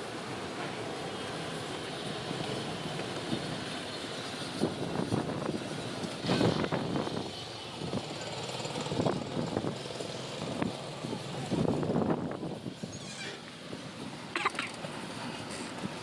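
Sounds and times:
strong wind buffeting microphone: 4.5 - 12.9.

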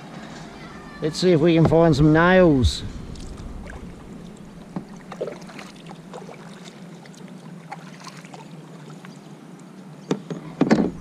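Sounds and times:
faint steady hum: 0.0 - 11.0
paddle splashing and dripping: 3.0 - 9.3.

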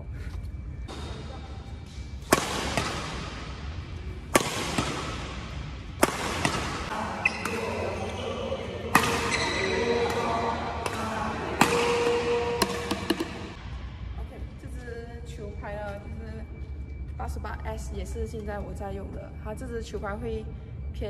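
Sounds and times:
racquet striking shuttlecock: 2.2 - 3.6, 4.3 - 8.2, 8.8 - 13.6.

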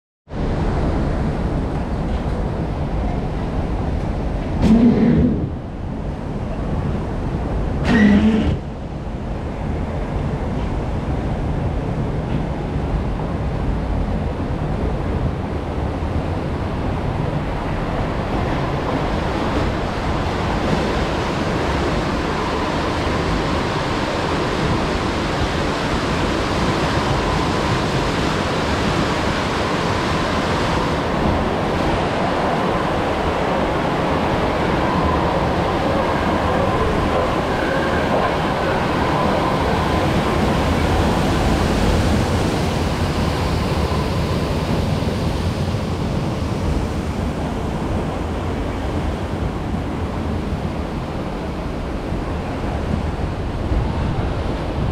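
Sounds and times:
water rushing and churning: 15.2 - 54.9.

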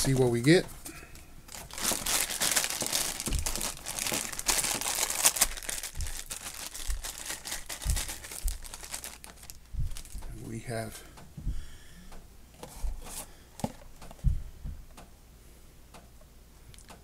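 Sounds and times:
foil wrapper crinkling and tearing: 1.5 - 10.2
soft low handling thumps: 2.6 - 10.6, 11.2 - 15.0.

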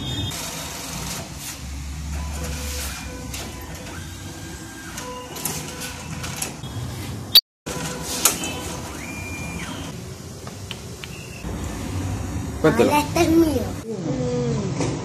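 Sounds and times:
cash dispenser whirring: 0.0 - 12.6.

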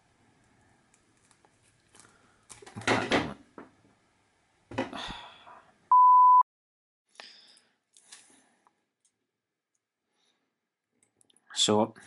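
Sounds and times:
loud steady beep: 5.9 - 6.4.

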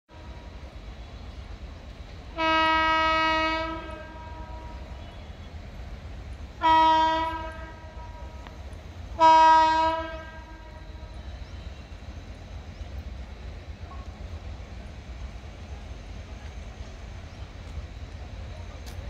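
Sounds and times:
locomotive horn blasts: 2.3 - 5.0, 6.6 - 8.5, 9.2 - 11.1.

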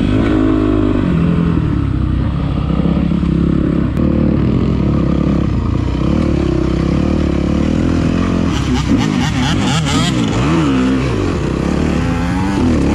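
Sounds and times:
dirt bike engine revving: 0.0 - 12.9.

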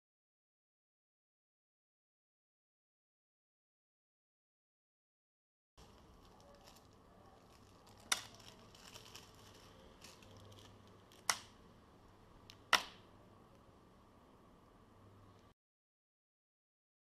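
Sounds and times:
plastic bag crinkling: 5.8 - 11.6.

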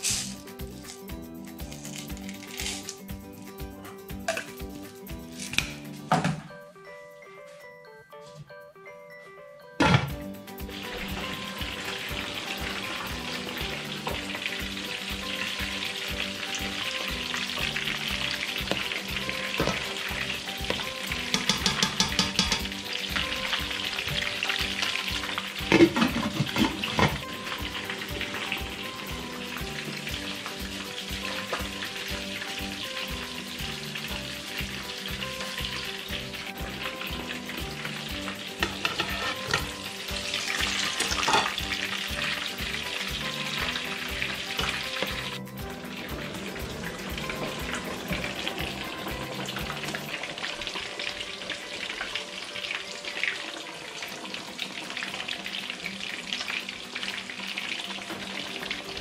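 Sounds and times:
fish sizzling in hot oil: 0.0 - 6.0, 10.4 - 59.0
glass pot lid clanking: 21.3 - 22.7.

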